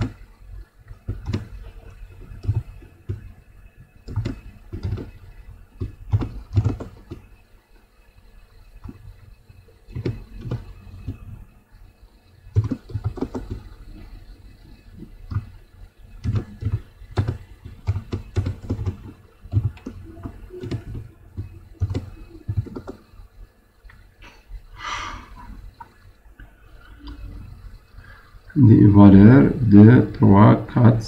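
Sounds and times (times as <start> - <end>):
computer keyboard typing: 1.0 - 3.4, 4.0 - 7.4, 9.9 - 11.3, 12.5 - 13.8, 15.0 - 15.6, 16.2 - 23.2.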